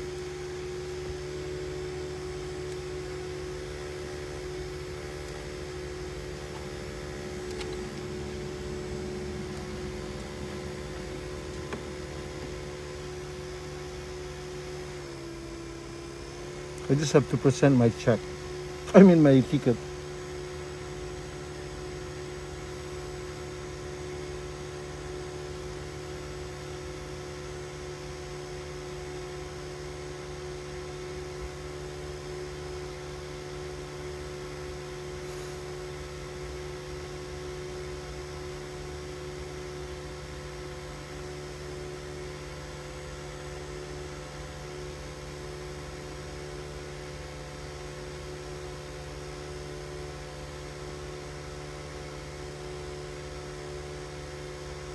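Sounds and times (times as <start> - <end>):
car idling low hum: 0.0 - 28.5.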